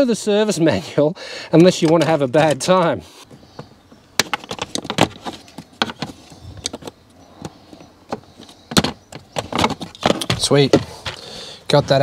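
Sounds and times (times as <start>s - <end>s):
clicks and knocks of car parts: 3.3s - 11.3s.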